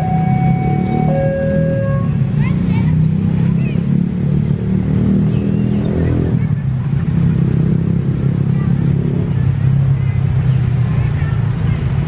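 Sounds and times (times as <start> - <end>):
train diesel engine running: 0.0 - 2.5.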